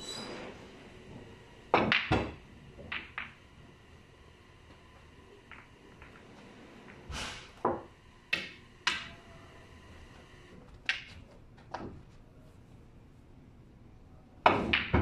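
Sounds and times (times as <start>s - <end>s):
billiard balls clacking: 0.2s - 3.8s, 4.6s - 9.3s, 10.6s - 12.1s, 14.4s - 15.0s
pool cue tapping ball: 1.1s - 3.8s, 4.7s - 9.4s, 10.8s - 12.0s, 14.4s - 15.0s.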